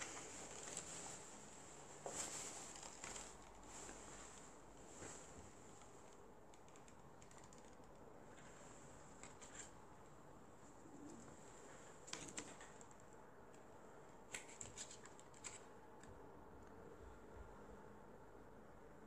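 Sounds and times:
packaging clicks and rustles: 0.0s - 1.2s, 2.1s - 4.0s, 12.0s - 13.1s, 14.3s - 15.7s.

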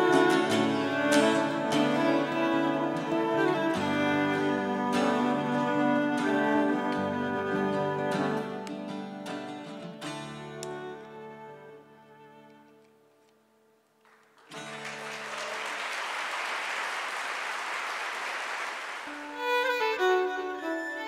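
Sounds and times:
plucked string instrument: 0.0s - 12.9s
audience applause: 14.1s - 19.8s.

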